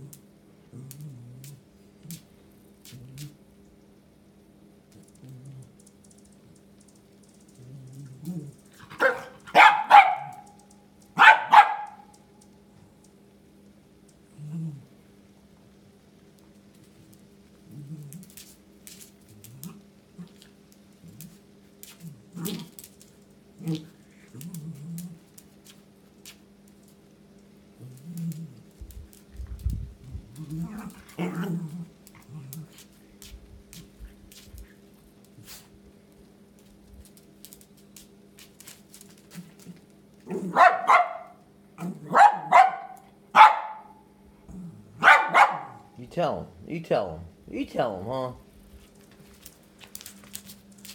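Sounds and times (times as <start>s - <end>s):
dog barking sharply: 8.9s - 10.6s, 11.2s - 12.1s, 40.4s - 41.4s, 42.1s - 44.0s, 45.0s - 45.9s
dog sniffing: 32.6s - 35.8s.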